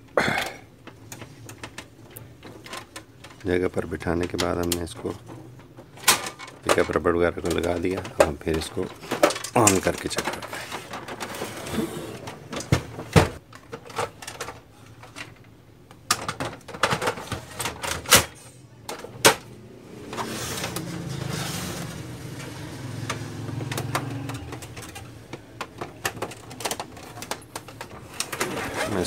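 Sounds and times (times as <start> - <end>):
plastic knocks and clicks: 22.9 - 28.4.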